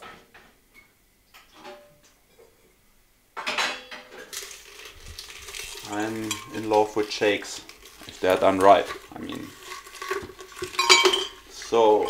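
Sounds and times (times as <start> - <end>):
dishes and utensils clattering: 3.4 - 12.0.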